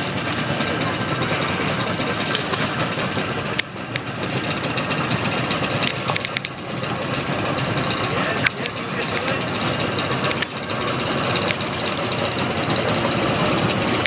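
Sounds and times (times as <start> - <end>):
engine running: 0.0 - 14.0
sharp clicks: 5.7 - 6.6, 8.4 - 10.6, 11.2 - 11.9.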